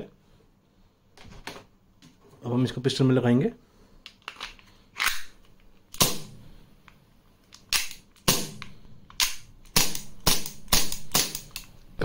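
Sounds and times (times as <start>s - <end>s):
air pistol shots: 6.0s - 6.4s, 7.7s - 11.6s.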